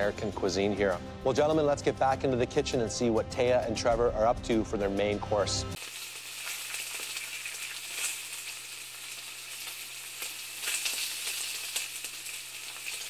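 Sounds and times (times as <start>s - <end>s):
sizzling hiss with crackles: 5.7s - 13.0s.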